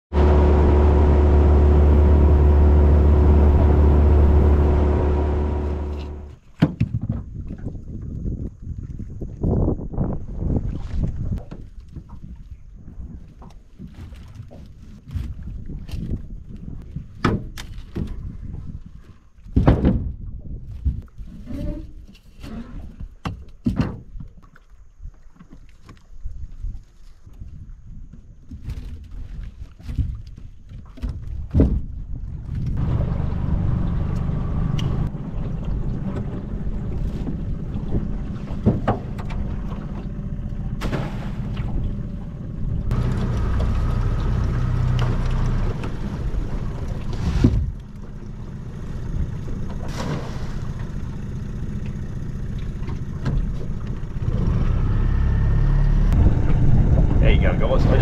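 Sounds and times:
engine running with low rumble: 0.0s - 6.4s, 31.0s - 58.0s
knocks and clunks: 19.5s - 20.2s, 32.7s - 46.2s.

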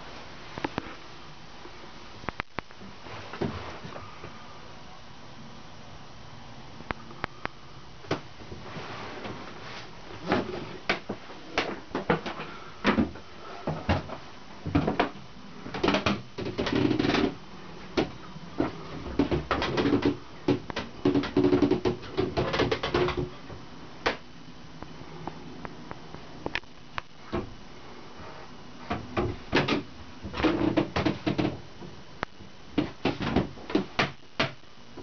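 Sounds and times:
wood creaking: 10.2s - 23.4s, 28.9s - 32.0s, 32.7s - 34.6s.

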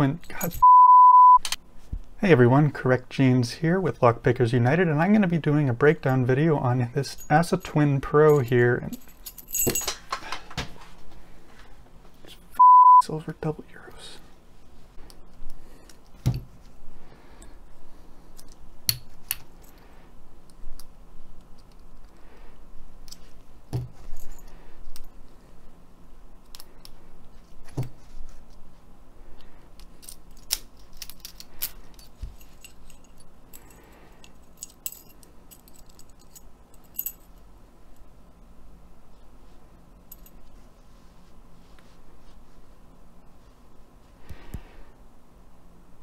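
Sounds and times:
keys jangling: 0.2s - 0.6s, 7.0s - 10.5s, 30.0s - 37.4s.

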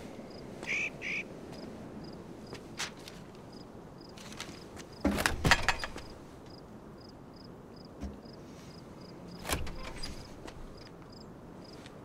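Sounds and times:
door knocks and rattles: 5.1s - 6.1s.

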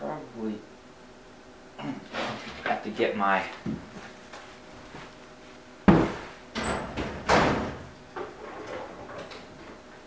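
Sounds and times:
door or drawer knocks and bangs: 5.9s - 8.0s.

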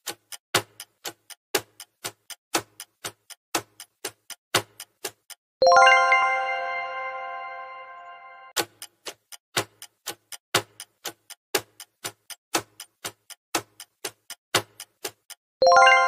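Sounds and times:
countdown clock ticking: 0.0s - 6.3s, 8.5s - 16.0s
ringing chime: 5.6s - 8.5s, 15.6s - 16.0s.

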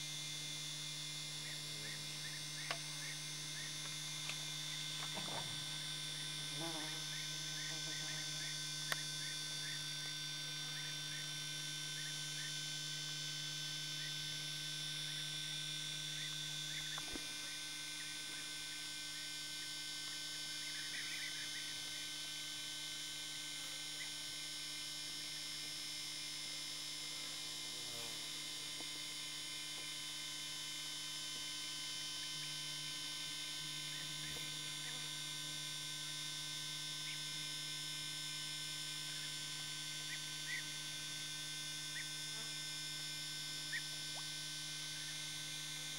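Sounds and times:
steady electrical hum: 0.0s - 45.9s.

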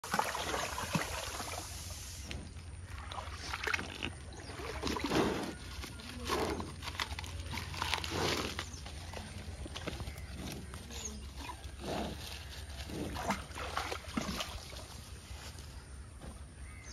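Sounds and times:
water sloshing: 0.0s - 15.5s
dry leaves rustling: 5.2s - 13.7s.

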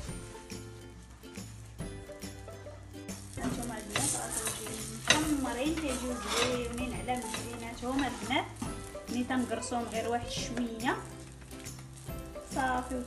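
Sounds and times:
flatbread sizzling in oil: 0.0s - 13.0s
scraping against a pan: 3.3s - 13.0s.

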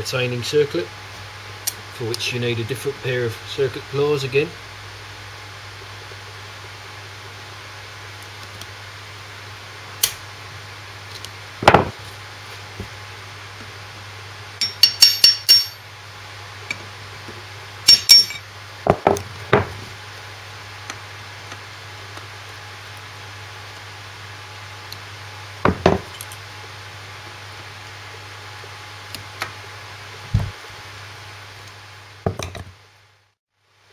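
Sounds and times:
low steady hum: 0.0s - 33.9s
metal clinks and taps: 14.6s - 15.8s, 17.9s - 18.4s
ringing metallic taps: 14.6s - 15.8s, 17.9s - 18.4s.

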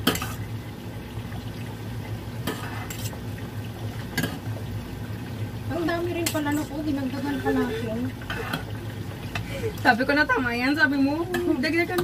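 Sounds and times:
spatula scraping a bowl: 2.5s - 3.2s, 8.3s - 8.7s.

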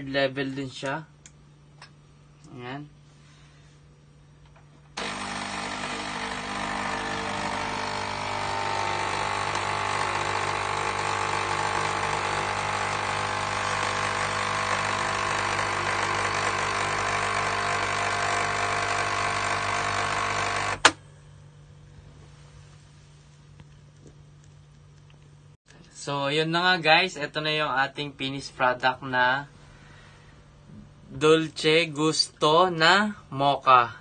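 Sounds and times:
coffee machine pump droning: 4.8s - 21.0s.

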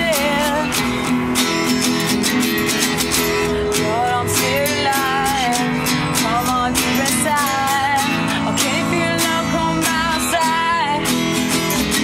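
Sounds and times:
woman singing: 0.0s - 1.0s, 3.7s - 12.0s
acoustic guitars strummed: 0.0s - 12.0s.

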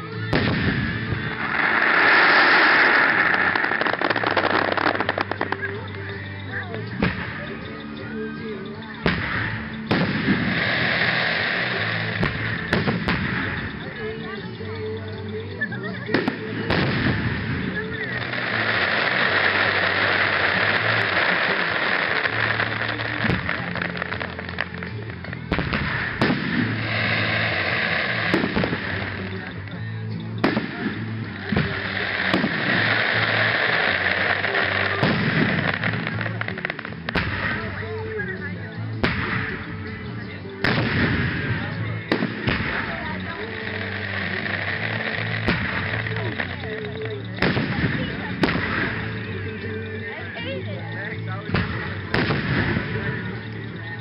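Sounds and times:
fireworks bursting with bangs: 0.0s - 54.0s
music playing: 0.0s - 54.0s
steady dense hiss: 0.0s - 54.0s
firework shells bursting: 0.4s - 6.0s, 16.2s - 29.5s.

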